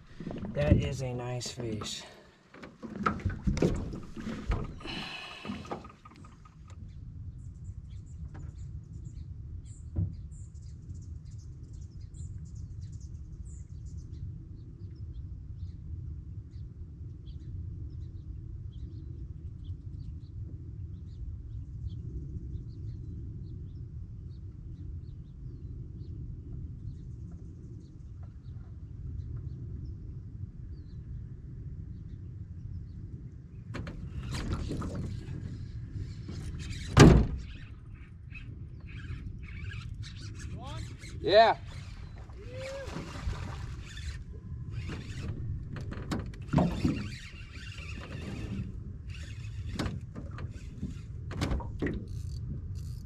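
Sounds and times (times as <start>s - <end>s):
steady low rumble: 0.0s - 1.8s
small birds chirping: 36.0s - 42.5s.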